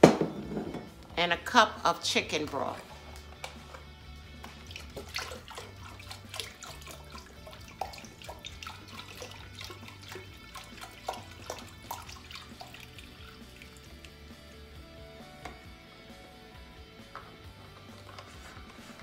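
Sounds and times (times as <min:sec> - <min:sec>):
soft background music: 0:00.0 - 0:19.0
liquid splashing and trickling: 0:02.7 - 0:14.8.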